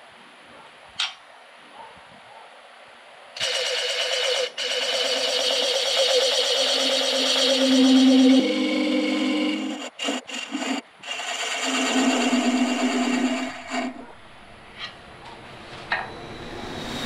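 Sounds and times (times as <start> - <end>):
wood lathe humming: 4.6 - 14.0
turning tool scraping wood: 6.8 - 14.1.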